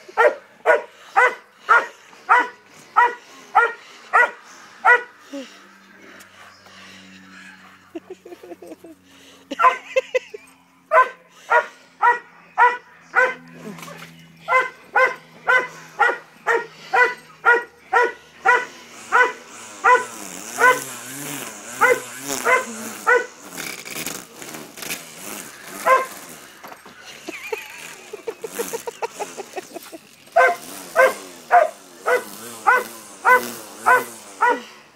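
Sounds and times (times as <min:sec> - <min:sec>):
dog barking: 0:00.2 - 0:05.1, 0:09.6 - 0:09.8, 0:10.9 - 0:13.4, 0:14.5 - 0:20.9, 0:21.8 - 0:23.3, 0:25.8 - 0:26.2, 0:30.4 - 0:34.7
rough noise: 0:13.4 - 0:34.7.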